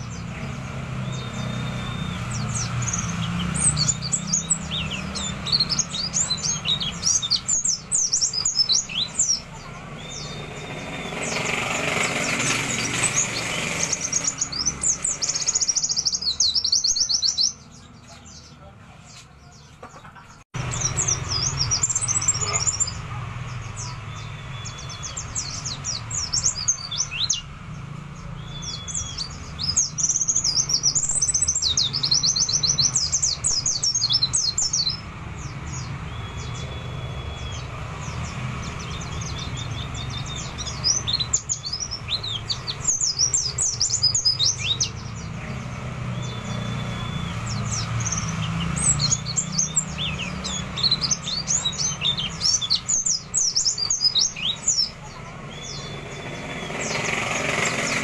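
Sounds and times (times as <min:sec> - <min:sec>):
bird twittering trills: 0:00.0 - 0:58.0.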